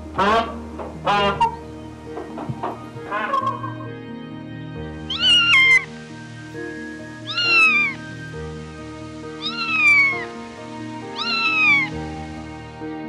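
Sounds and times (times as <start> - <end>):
soft piano music: 0.0 - 13.0
kitten meowing: 5.1 - 5.9, 7.2 - 8.0, 9.4 - 10.3, 11.1 - 12.0.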